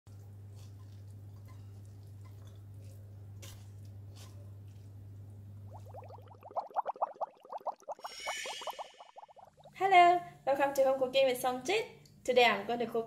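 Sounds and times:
short rising blips: 5.8 - 9.8.

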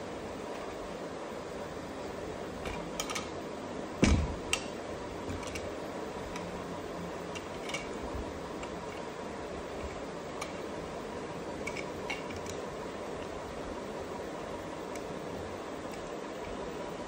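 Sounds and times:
background hiss: 0.0 - 17.0
dull thump: 4.0 - 4.4.

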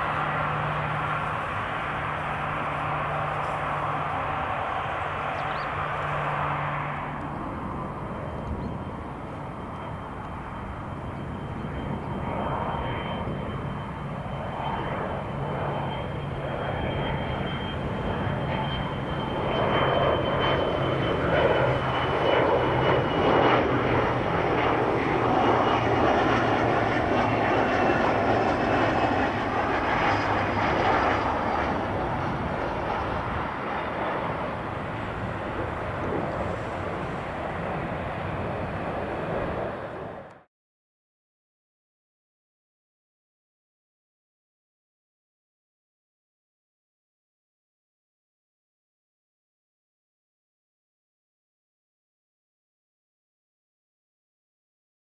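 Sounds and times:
jet engine rumble and whine: 0.0 - 40.5.

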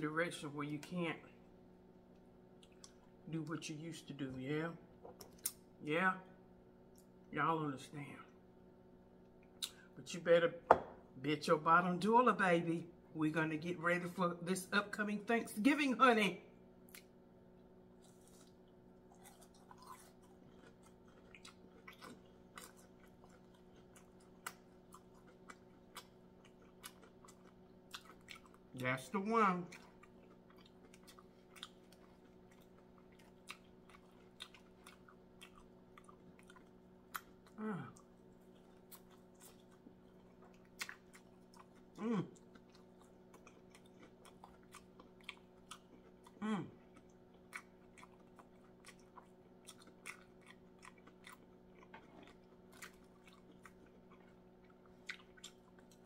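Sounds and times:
steady low hum: 0.0 - 56.0
quiet chewing: 2.1 - 3.6, 16.8 - 28.9, 29.6 - 56.0
person moaning mmm: 37.6 - 38.0, 42.0 - 42.4, 46.4 - 46.8.

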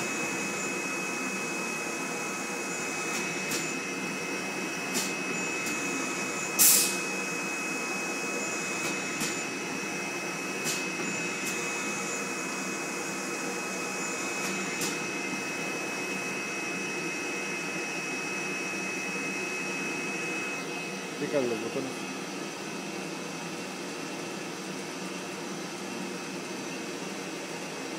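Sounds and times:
printing press humming: 0.0 - 27.9
pneumatic air hisses: 4.8 - 7.2, 8.6 - 9.6.

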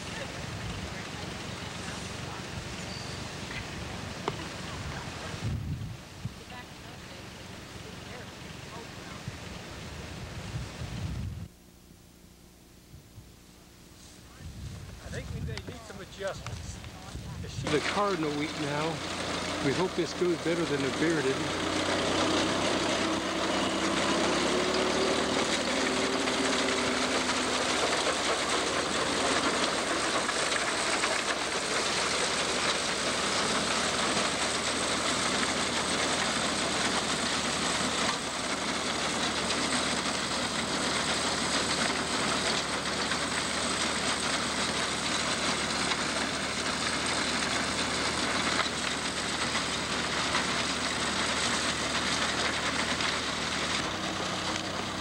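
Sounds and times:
tractor engine running under load: 0.0 - 9.8, 13.8 - 55.0
binder cutter mechanism running: 17.6 - 55.0.

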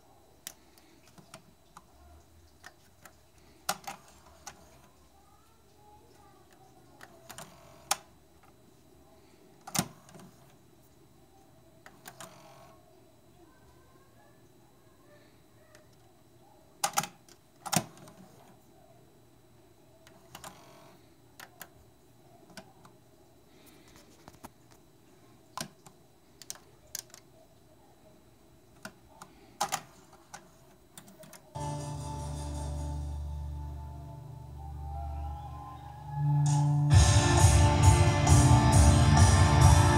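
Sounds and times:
music with low bass: 36.4 - 39.9.

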